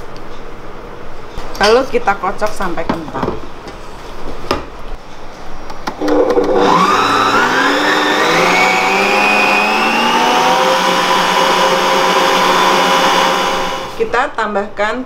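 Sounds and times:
stand mixer motor whining: 6.0s - 14.0s.

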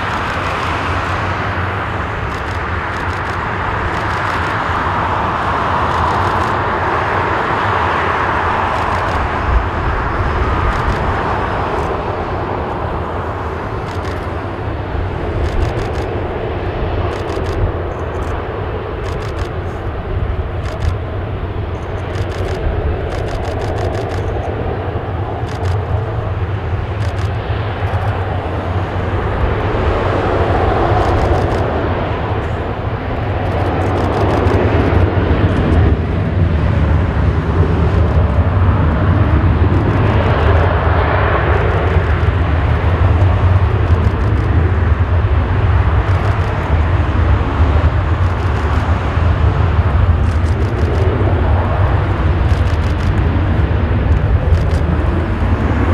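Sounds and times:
jet engines rumbling: 0.0s - 55.9s.

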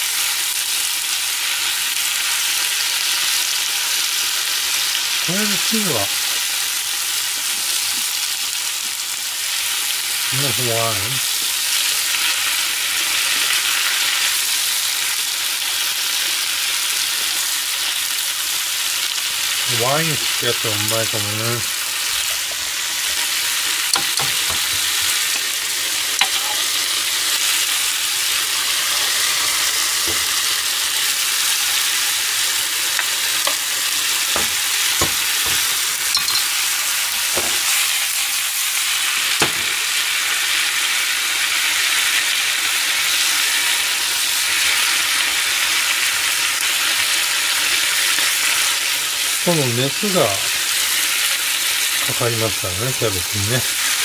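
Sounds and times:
cabbage sizzling in frying pan: 0.0s - 54.0s
utensil knocking against pan: 24.0s - 24.8s, 34.3s - 36.5s.

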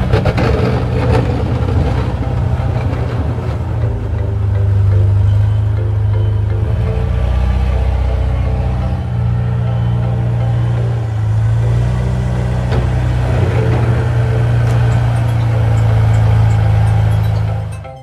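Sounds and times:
engine droning: 0.0s - 18.0s.

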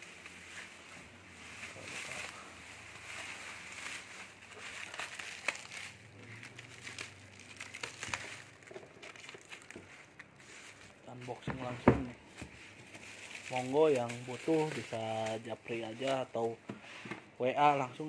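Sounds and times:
plastic wrap crinkling: 0.0s - 16.6s.

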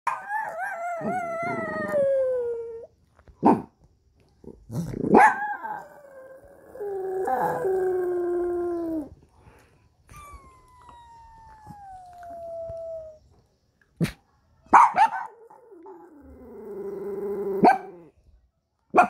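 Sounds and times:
small dog howling: 0.1s - 2.9s, 5.3s - 9.1s, 10.1s - 13.2s.

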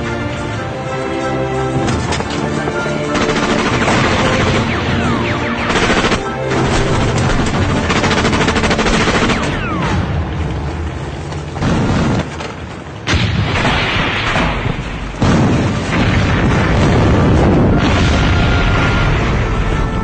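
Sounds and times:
machine gun burst: 3.0s - 9.9s
explosion booms: 13.1s - 20.0s.

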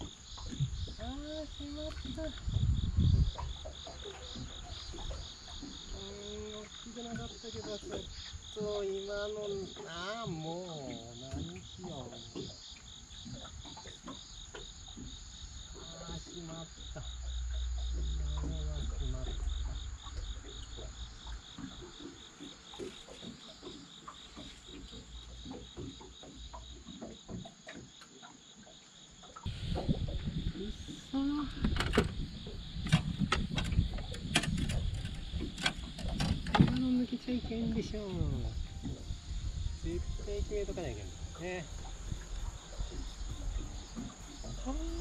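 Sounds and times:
insects chorus: 0.0s - 45.0s
low rumble: 0.5s - 3.6s.

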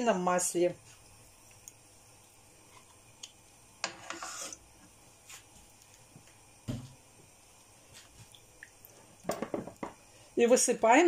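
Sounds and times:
short scrape: 3.9s - 4.6s.

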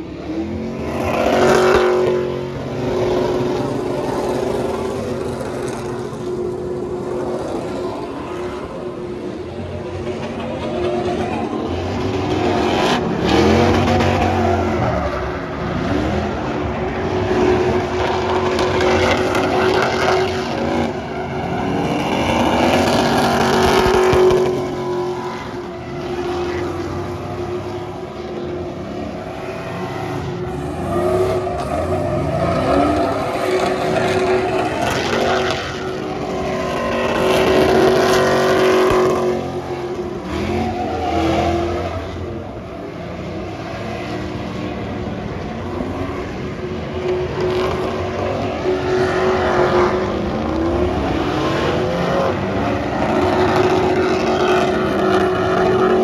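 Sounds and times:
truck engine revving: 0.0s - 56.0s.

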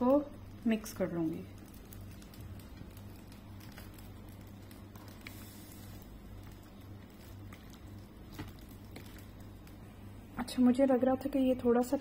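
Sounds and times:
hand squishing wet batter: 1.1s - 10.1s.

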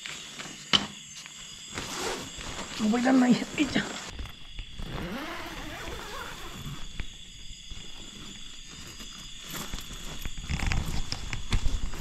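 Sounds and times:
night insects trilling: 0.0s - 12.0s
gear rustling and knocking: 4.1s - 12.0s.

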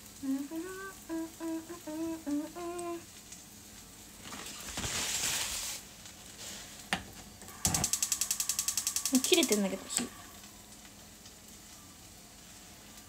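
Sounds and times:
woman humming: 0.0s - 3.1s
pan frying hiss: 0.0s - 13.0s
gas stove igniter clicking: 7.6s - 10.8s.

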